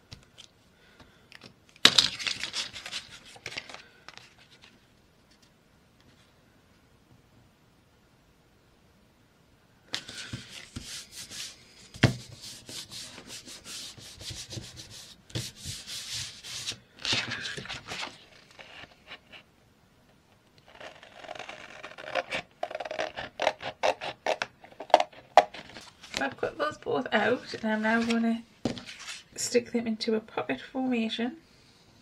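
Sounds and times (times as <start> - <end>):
paper rustling and crackling: 1.8 - 5.5, 14.2 - 19.4, 24.7 - 26.4
hands rubbing paper: 9.9 - 19.4, 20.7 - 26.4.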